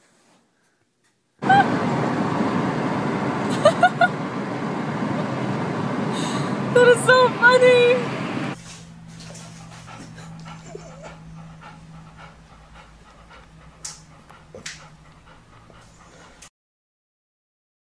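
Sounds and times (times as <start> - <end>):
low steady hum: 1.4 - 16.4
dog panting: 4.2 - 16.5.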